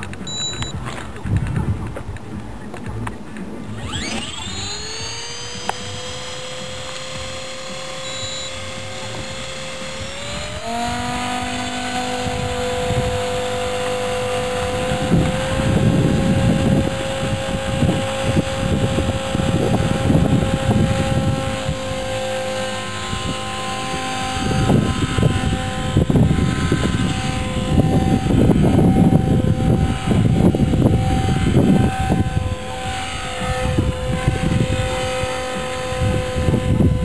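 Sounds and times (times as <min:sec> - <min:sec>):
rc helicopter whine: 0:00.0 - 0:00.9, 0:02.8 - 0:37.0
wind rumble on microphone: 0:00.0 - 0:37.0.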